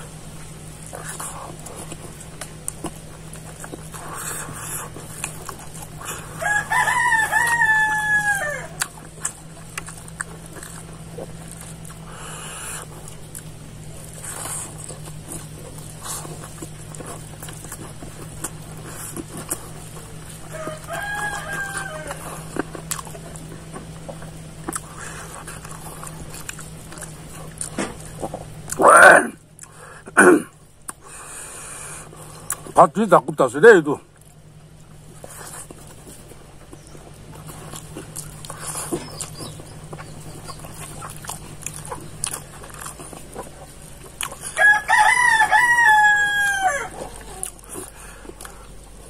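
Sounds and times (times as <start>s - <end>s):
man eating with clicks and smacks: 0.0s - 49.0s
rooster crowing: 6.0s - 9.1s, 20.3s - 23.2s, 44.4s - 47.5s.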